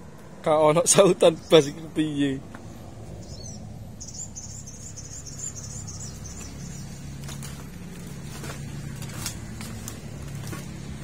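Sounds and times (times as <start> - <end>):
high chirping: 3.2 - 7.2.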